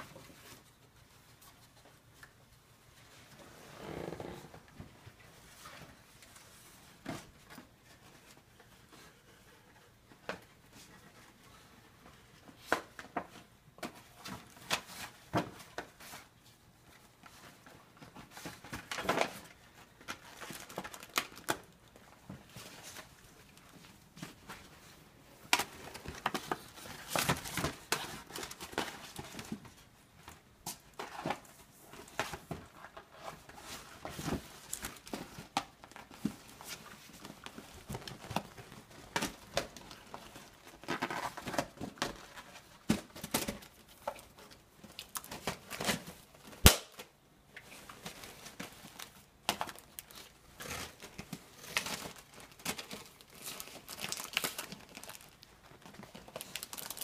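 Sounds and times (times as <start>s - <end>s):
paper crinkling and tearing: 47.9s - 57.0s.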